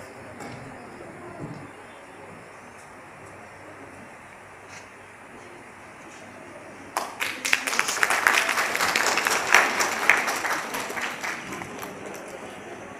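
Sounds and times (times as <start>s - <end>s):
audience applause: 6.9s - 12.9s.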